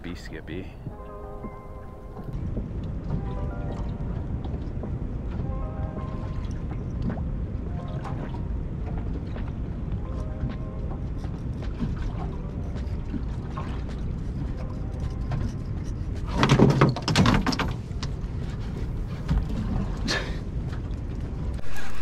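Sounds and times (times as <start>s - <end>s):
river water: 0.0s - 22.0s
wind: 0.0s - 22.0s
rustling and knocks: 14.4s - 20.0s.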